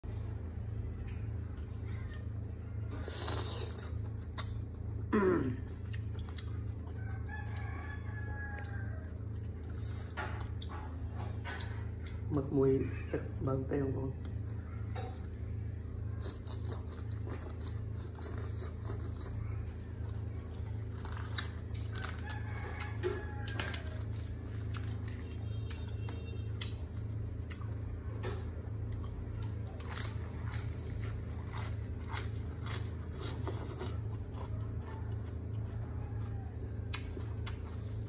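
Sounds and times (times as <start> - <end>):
steady low hum: 0.0 - 38.0
chewing and wet mouth clicks: 3.3 - 4.9, 5.8 - 7.7, 25.6 - 26.8, 27.4 - 30.0, 31.5 - 37.8
rooster crowing: 6.8 - 9.6, 21.8 - 24.8, 34.5 - 38.0.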